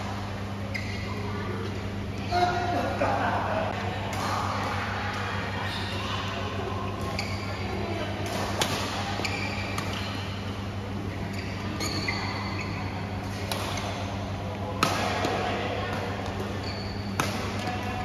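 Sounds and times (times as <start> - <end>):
shoe squeaks: 0.7 - 2.5, 7.1 - 7.7, 9.2 - 10.5, 11.1 - 12.9, 16.6 - 17.2
racket hitting shuttlecock: 8.2 - 10.4, 13.2 - 14.1, 14.8 - 18.0.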